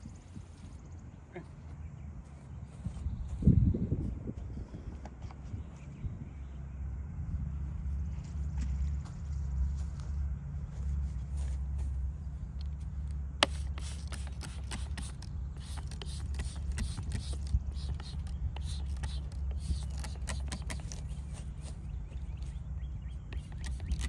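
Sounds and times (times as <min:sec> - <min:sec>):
steady low rumble: 0:00.0 - 0:24.0
spray bottle squirts: 0:13.4 - 0:21.4, 0:23.3 - 0:24.0.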